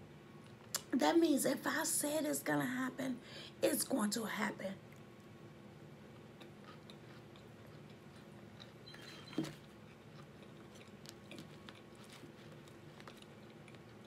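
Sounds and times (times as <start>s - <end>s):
faint low hum: 0.0s - 14.0s
chewing food: 6.1s - 14.0s.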